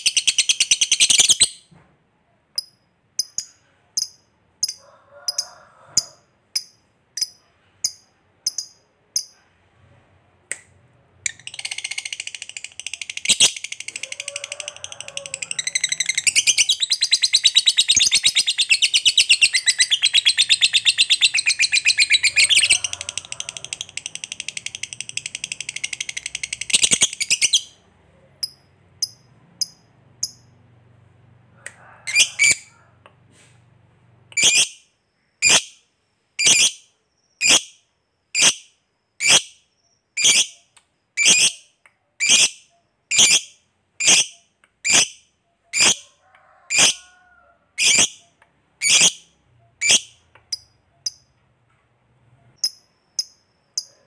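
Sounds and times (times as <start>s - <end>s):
sharp bird calls: 11.3s - 27.8s
lovebird chattering trill: 15.2s - 27.7s, 47.8s - 48.2s.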